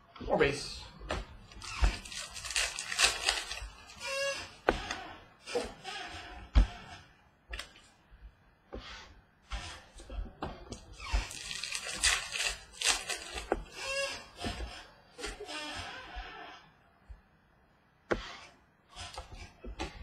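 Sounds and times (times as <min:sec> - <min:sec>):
cards rustling: 0:01.6 - 0:04.2, 0:11.3 - 0:13.5
wrappers crinkling: 0:01.6 - 0:04.2, 0:11.2 - 0:13.5.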